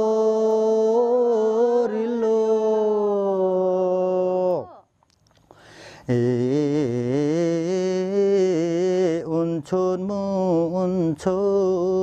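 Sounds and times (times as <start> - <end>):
person singing unaccompanied: 0.0 - 4.9, 6.0 - 12.0.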